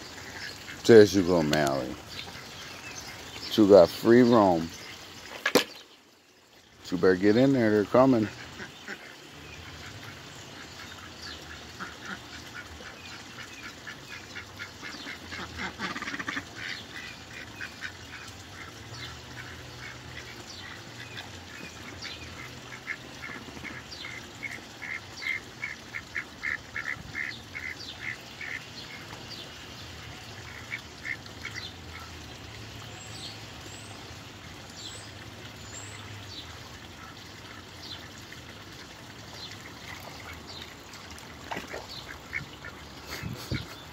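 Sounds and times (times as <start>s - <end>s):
ducks quacking: 8.0s - 29.1s, 30.4s - 32.2s, 41.5s - 43.9s.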